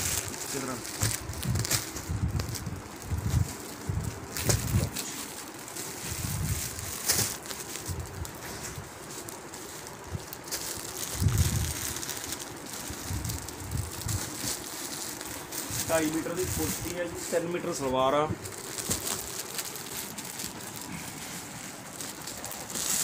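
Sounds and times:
plastic wrap rustling and crinkling: 0.0s - 23.0s
sharp crackles: 0.0s - 23.0s
soft low thumps: 0.8s - 5.0s.

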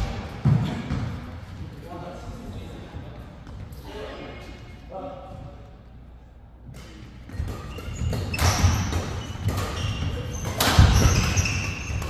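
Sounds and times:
racket hitting shuttlecock: 6.7s - 12.0s
shoes squeaking on court: 7.3s - 12.0s.

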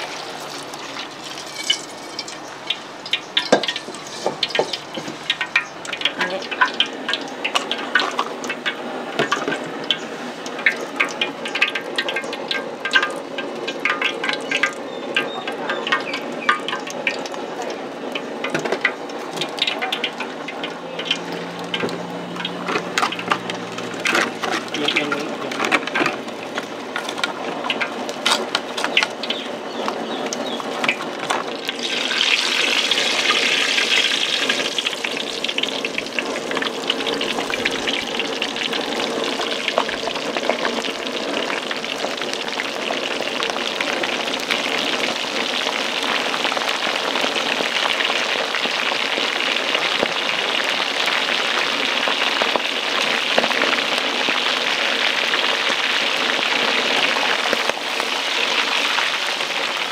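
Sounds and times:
food sizzling in hot oil: 0.0s - 59.9s
clicks and clatter: 18.4s - 29.2s.

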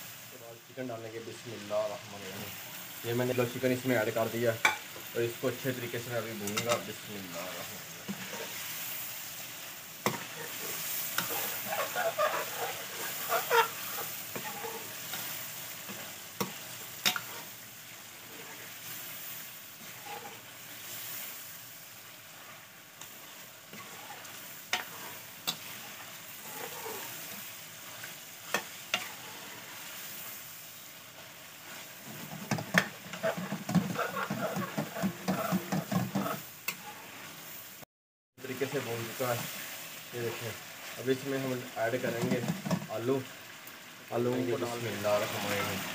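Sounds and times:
chicken sizzling in hot oil: 0.0s - 45.9s
spoon stirring and scraping: 6.4s - 8.8s, 10.0s - 17.6s, 18.2s - 19.0s, 19.8s - 21.2s, 22.3s - 30.0s, 31.6s - 37.3s.

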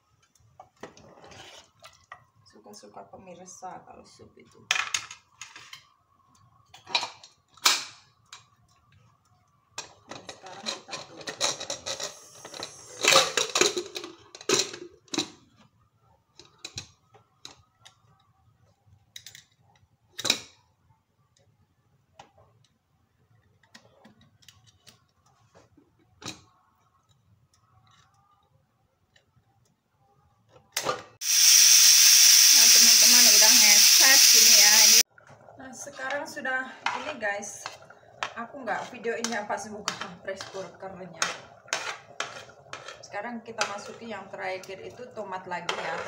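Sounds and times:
pot lid scraping and clattering: 39.2s - 44.0s.

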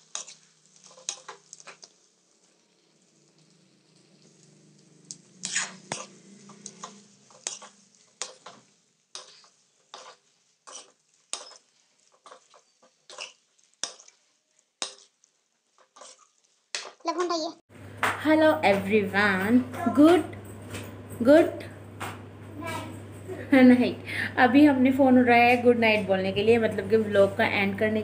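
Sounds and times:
metal spoon scraping iron pan: 0.0s - 1.9s, 5.3s - 14.2s, 15.8s - 17.0s.

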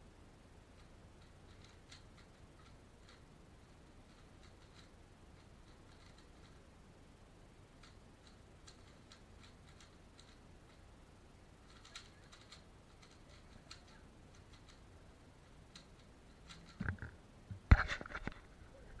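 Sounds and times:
puzzle cube clicking: 0.8s - 3.2s, 7.8s - 10.8s, 11.6s - 14.8s, 15.4s - 17.0s
handling knocks and thumps: 16.5s - 18.5s.

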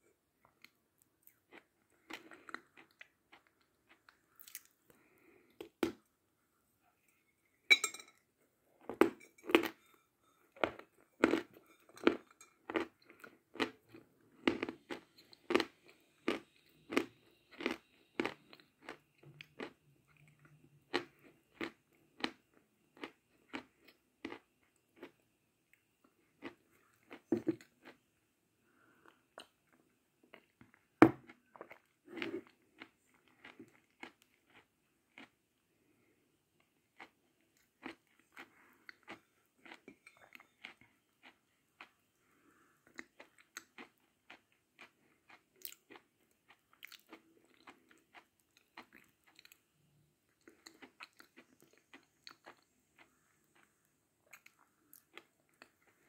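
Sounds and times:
chalk crunching while chewed: 10.6s - 22.4s, 31.5s - 35.3s.

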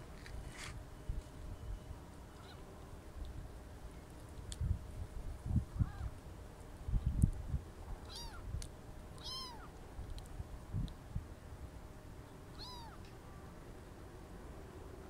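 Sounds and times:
kitten mewing: 8.1s - 8.4s, 9.2s - 9.7s, 12.6s - 13.0s.

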